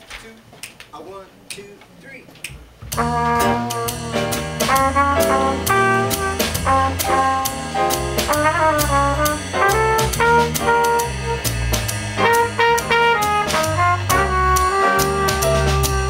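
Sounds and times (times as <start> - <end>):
bass: 2.4 - 16.0
drums: 2.4 - 16.0
piano: 2.9 - 16.0
trumpet melody: 2.9 - 16.0
cymbal strokes: 3.0 - 16.0.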